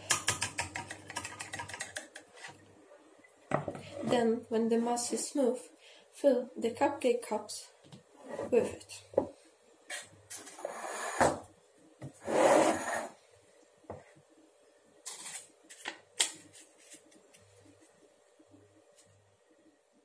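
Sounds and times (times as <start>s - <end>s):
bowl and pan scraping on counter: 8.2s - 8.7s, 10.3s - 11.4s, 12.2s - 13.2s.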